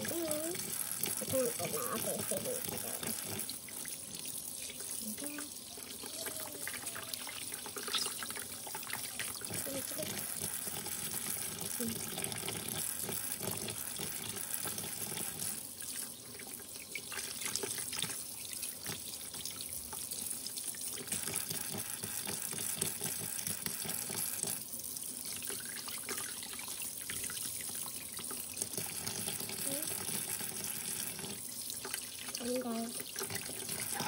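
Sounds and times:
tap water running into sink: 0:00.0 - 0:34.0
splashes and clatter: 0:04.8 - 0:16.0, 0:28.6 - 0:34.0.

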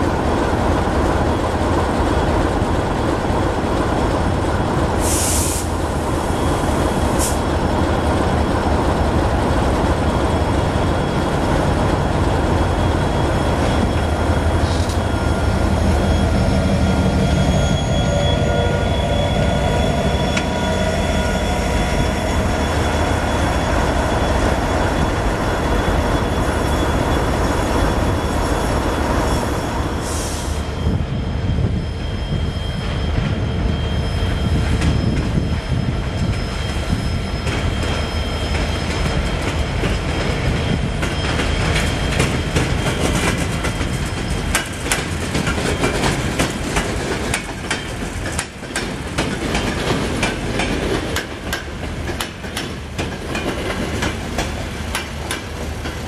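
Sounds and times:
short hisses: 0:05.0 - 0:05.8
wheels squealing: 0:10.4 - 0:30.0.

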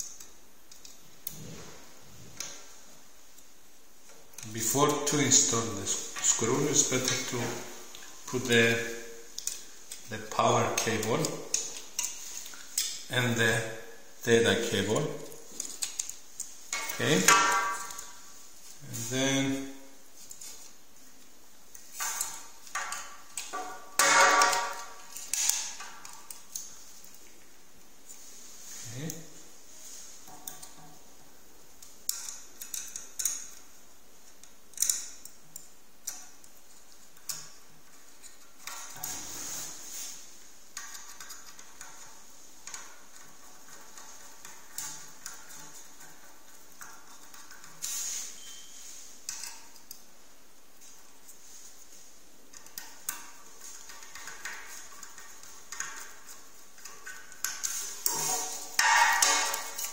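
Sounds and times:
steady hiss: 0:00.0 - 0:59.9
screwdriver metallic clicks and scrapes: 0:52.5 - 0:59.9.

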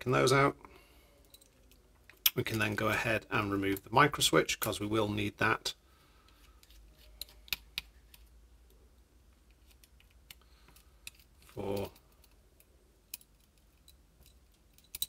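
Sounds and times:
light clicks and taps of small parts: 0:06.2 - 0:15.0.

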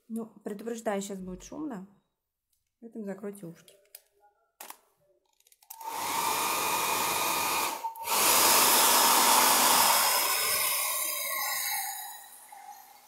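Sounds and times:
hair dryer running: 0:05.8 - 0:10.8.

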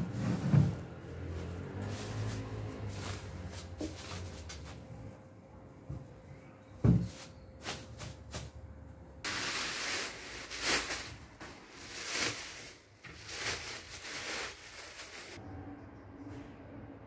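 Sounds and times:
plastic wrapping crinkling: 0:01.3 - 0:04.8, 0:09.2 - 0:15.4
faint handling of wrapped object: 0:09.3 - 0:15.4.

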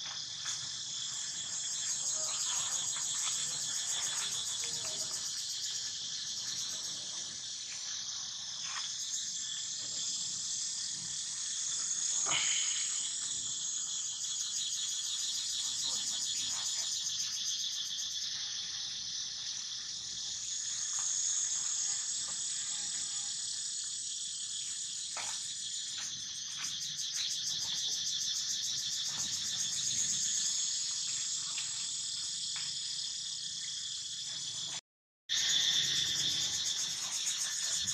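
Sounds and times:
insects buzzing: 0:00.0 - 0:37.9.

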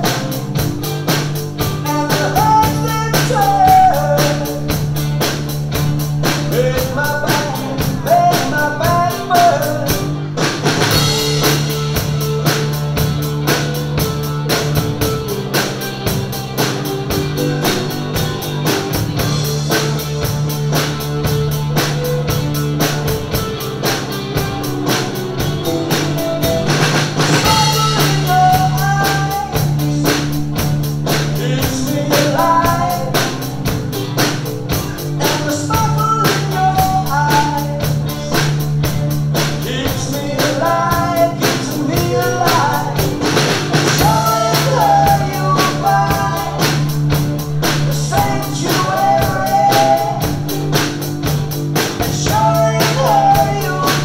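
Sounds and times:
drum kit playing rock beat: 0:00.0 - 0:54.0
recorded rock song with singing: 0:00.0 - 0:54.0.

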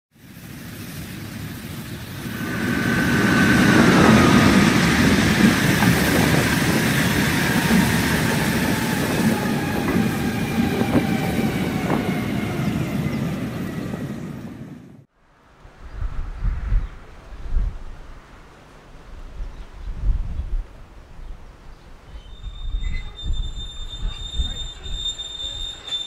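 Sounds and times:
train rumbling past: 0:00.2 - 0:15.1, 0:22.0 - 0:26.0
wheels clattering over rail joints: 0:02.3 - 0:11.1.

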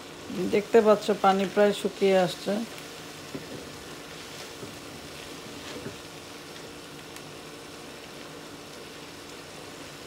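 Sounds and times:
spatula stirring strokes: 0:00.0 - 0:07.1
vegetable paste sizzling: 0:00.0 - 0:10.0.

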